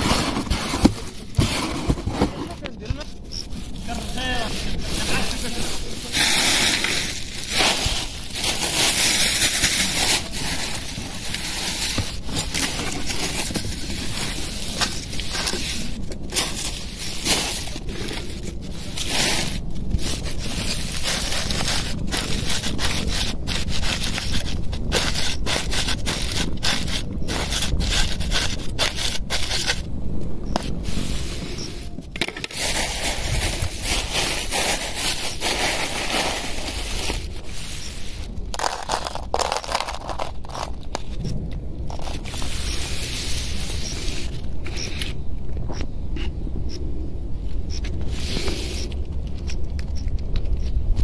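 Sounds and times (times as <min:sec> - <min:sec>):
phone rustling through grass: 0:00.0 - 0:29.8, 0:30.5 - 0:45.2.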